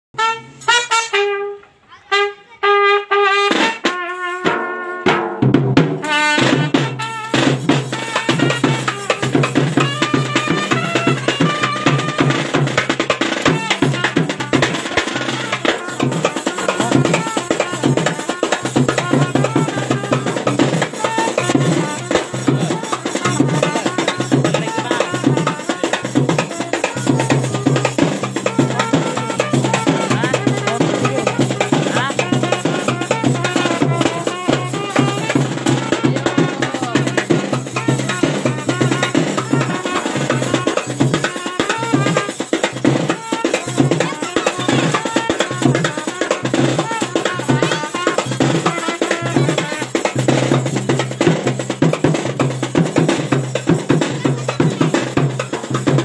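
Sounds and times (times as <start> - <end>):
drums and percussion: 0.1 - 56.0
brass phrases: 0.2 - 42.5.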